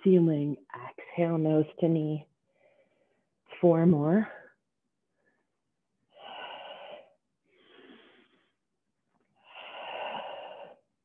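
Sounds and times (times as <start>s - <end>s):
woman breathing: 2.4s - 3.4s, 5.1s - 11.0s.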